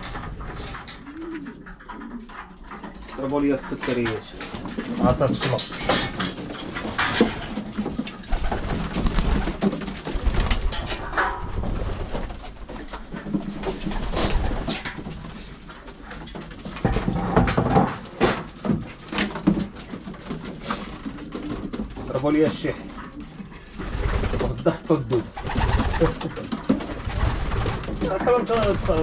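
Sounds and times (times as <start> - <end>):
pigeons cooing: 0.0 - 11.1, 22.7 - 29.0.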